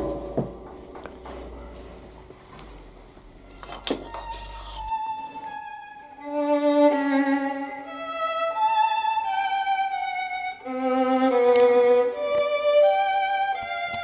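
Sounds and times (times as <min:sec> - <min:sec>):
bowed violin melody: 0:03.3 - 0:14.0.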